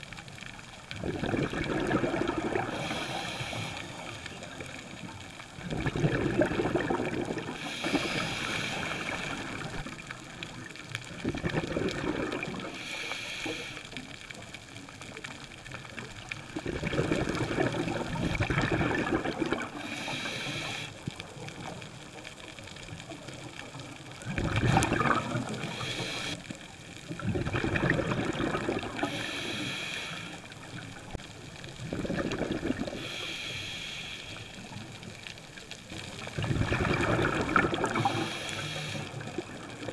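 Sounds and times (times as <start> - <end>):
gurgling exhaled bubbles: 0.8 - 13.0, 15.8 - 33.3, 35.8 - 39.9
diver breathing through regulator: 2.6 - 4.3, 7.4 - 9.9, 12.6 - 14.0, 19.6 - 21.0, 24.6 - 26.6, 28.8 - 30.6, 32.8 - 34.8, 37.6 - 39.4.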